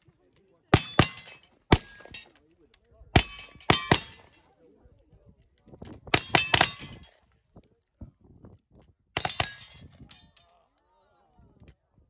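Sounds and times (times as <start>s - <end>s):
steel plate ringing: 0.8s - 2.3s.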